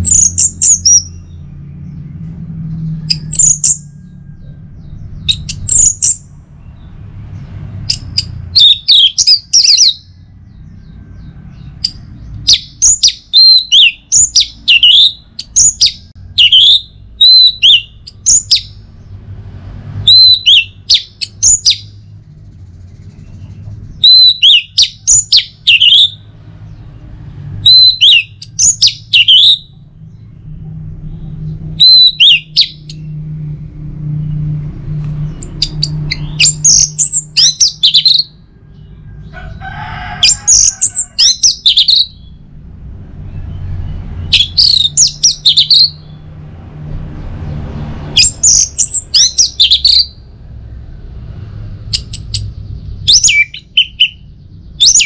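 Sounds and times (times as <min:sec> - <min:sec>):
thrush singing whistled notes: 0:00.0 - 0:07.0, 0:07.8 - 0:18.9, 0:20.0 - 0:22.2, 0:23.8 - 0:26.8, 0:27.6 - 0:33.4, 0:35.2 - 0:39.0, 0:40.2 - 0:42.5, 0:43.3 - 0:46.2, 0:48.1 - 0:50.2, 0:51.8 - 0:55.0.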